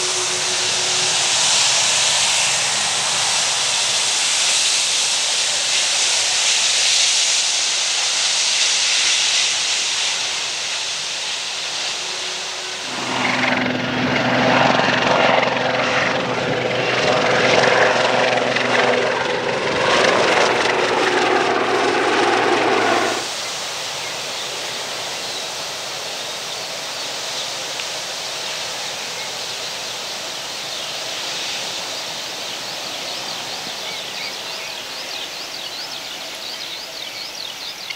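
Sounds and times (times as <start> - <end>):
helicopter flying by: 0.0 - 7.0, 9.4 - 23.3
jet engines hissing and whining: 0.0 - 37.8.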